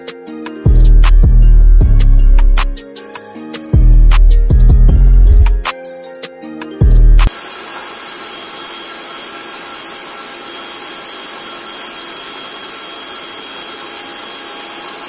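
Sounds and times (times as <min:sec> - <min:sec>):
mixer grinder running: 0:07.2 - 0:15.0.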